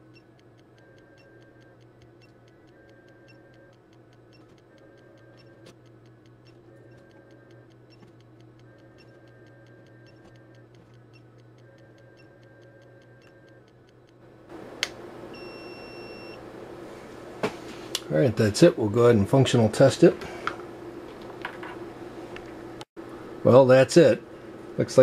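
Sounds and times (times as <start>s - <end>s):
generator ticking: 0.0s - 15.0s
beep: 15.4s - 16.4s.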